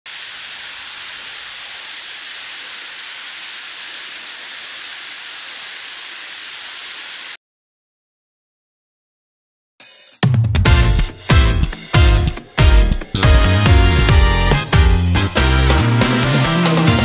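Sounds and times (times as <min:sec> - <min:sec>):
waterfall splashing onto rocks: 0:00.1 - 0:07.4.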